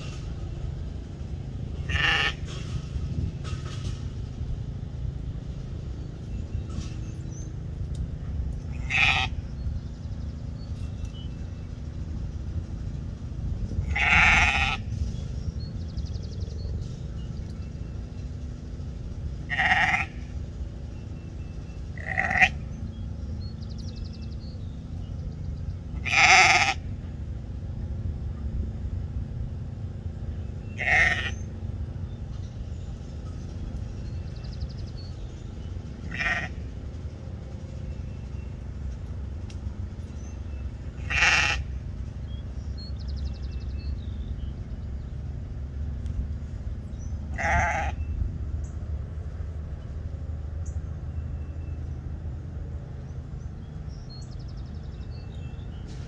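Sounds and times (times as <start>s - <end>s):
low rumble: 0.0s - 56.0s
sheep bleating: 1.8s - 2.5s, 8.7s - 9.4s, 13.8s - 14.9s, 19.5s - 20.3s, 22.0s - 22.6s, 26.0s - 26.8s, 30.8s - 31.5s, 36.0s - 36.6s, 41.0s - 41.7s, 47.3s - 48.0s.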